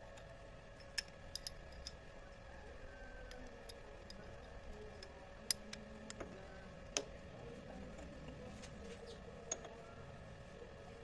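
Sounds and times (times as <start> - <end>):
faint steady hum: 0.0 - 11.0
metal tool clicks: 0.8 - 2.0.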